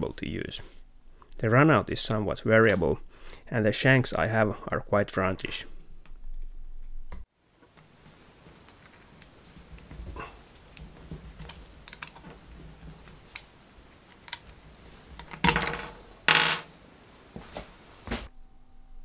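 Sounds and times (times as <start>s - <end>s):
small metal clicks: 10.7s - 12.4s
parts knocking on workbench: 15.2s - 16.7s.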